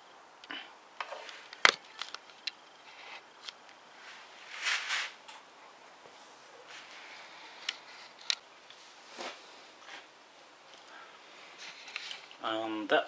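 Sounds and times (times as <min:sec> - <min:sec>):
short rustle: 0:03.9 - 0:05.3, 0:06.1 - 0:10.1.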